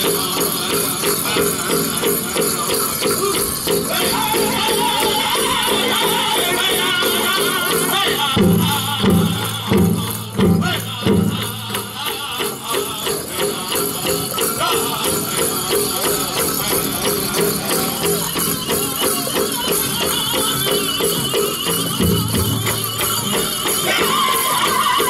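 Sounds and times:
group singing: 0:00.0 - 0:16.1, 0:18.9 - 0:25.0
leg bells jingling: 0:00.0 - 0:25.0
large drum beating: 0:08.3 - 0:12.2, 0:21.8 - 0:23.4.

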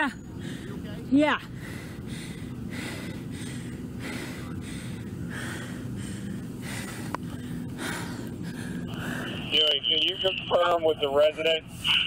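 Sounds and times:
person breathing hard and fast: 0:00.3 - 0:09.5.

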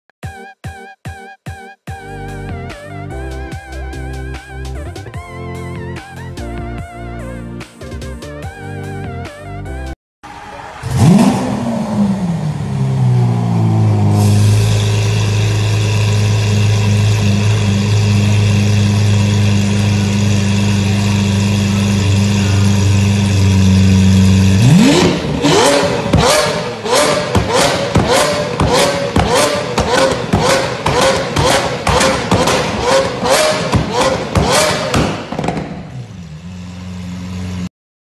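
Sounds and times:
car engine starting and idling: 0:10.3 - 0:37.7
engine revving: 0:10.6 - 0:37.7.

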